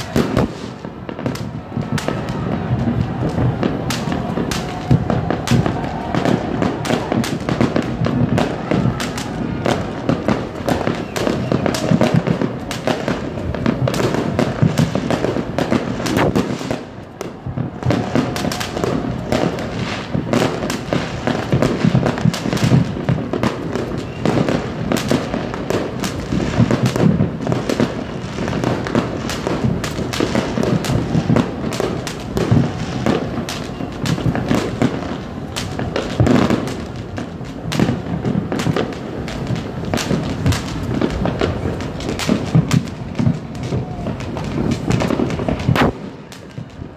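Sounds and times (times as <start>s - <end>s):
fireworks bursting: 0.0s - 46.9s.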